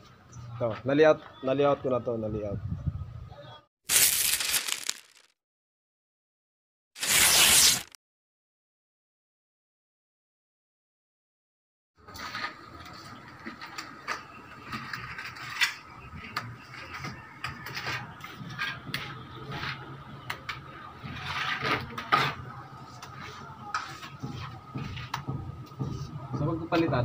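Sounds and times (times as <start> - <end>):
trowel scraping and tapping: 23.0 - 26.0.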